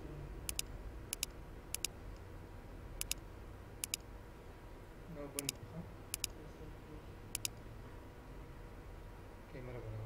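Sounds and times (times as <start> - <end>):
low background hum: 0.0 - 10.0
computer mouse button clicks: 0.5 - 1.9, 3.0 - 3.2, 3.8 - 4.0, 5.4 - 6.3.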